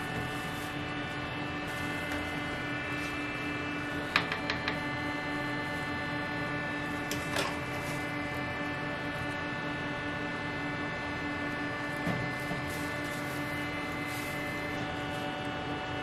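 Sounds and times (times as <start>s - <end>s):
kitchen equipment humming: 0.0s - 16.0s.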